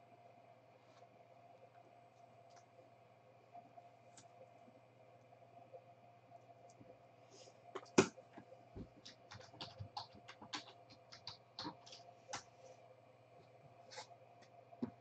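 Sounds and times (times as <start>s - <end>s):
trading cards clicking: 8.8s - 12.5s.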